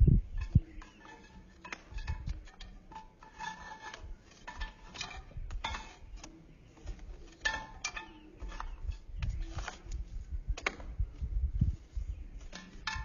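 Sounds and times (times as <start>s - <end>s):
wood scraping against glass: 0.4s - 10.0s.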